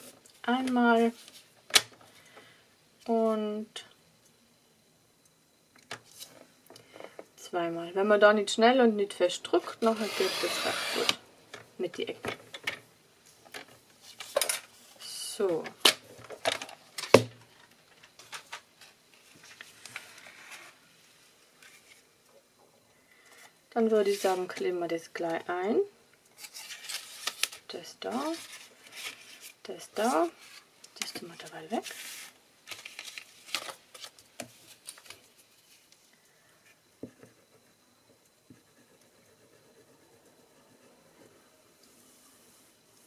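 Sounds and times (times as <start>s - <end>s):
paper rustling: 26.4s - 27.6s, 31.8s - 35.9s.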